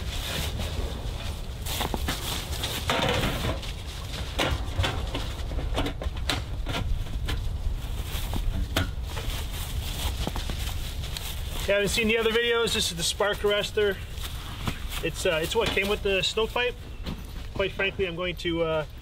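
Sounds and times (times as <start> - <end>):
footsteps in dry leaves: 0.0 - 5.5, 7.5 - 16.7.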